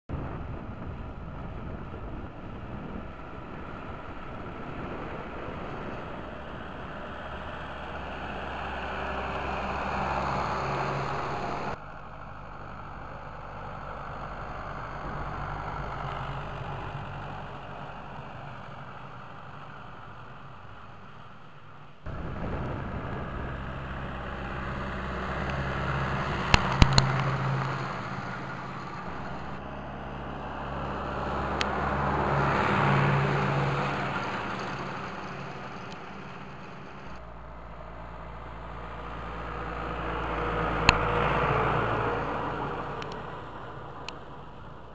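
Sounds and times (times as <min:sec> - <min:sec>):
tractor diesel engine running: 0:00.2 - 0:44.9
sharp clicks: 0:26.5 - 0:27.8.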